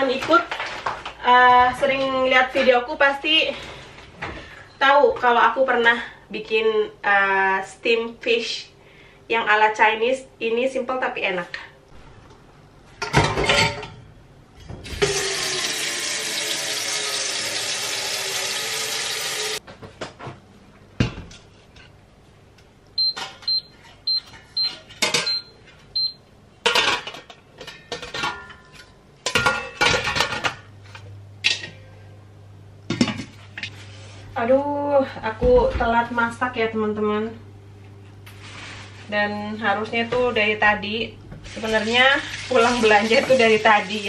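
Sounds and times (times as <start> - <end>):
tap water running into pot: 14.9 - 19.6.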